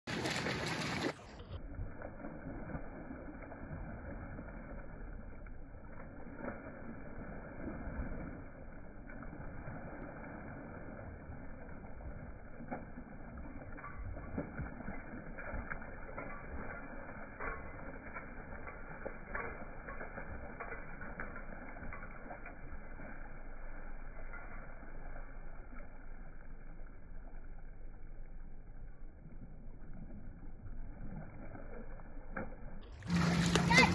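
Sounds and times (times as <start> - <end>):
deep muffled wash of water: 0.1 - 16.7, 25.1 - 33.9.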